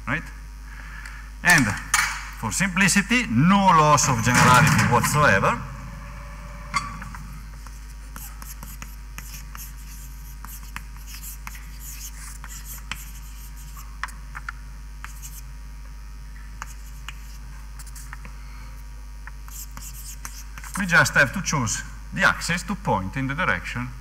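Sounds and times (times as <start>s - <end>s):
low hum: 2.5s - 7.8s
pen scratching while writing: 7.6s - 13.9s, 19.5s - 20.8s.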